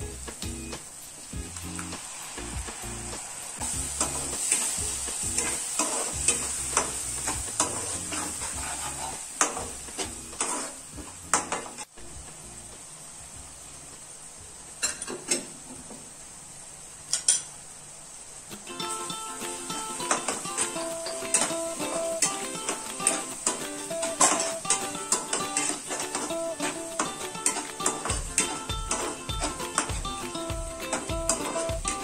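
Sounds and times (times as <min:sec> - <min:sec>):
food sizzling in a pan: 0:00.0 - 0:32.0
spatula stirring and scraping: 0:05.4 - 0:10.8.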